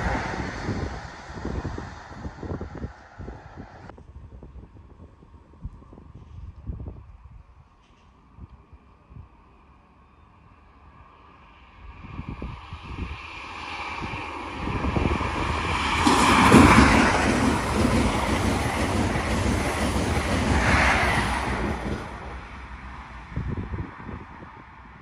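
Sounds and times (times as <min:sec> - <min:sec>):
air rush buffeting microphone: 0:00.0 - 0:03.9, 0:11.8 - 0:25.0
train passing at speed: 0:00.0 - 0:03.9, 0:10.8 - 0:25.0.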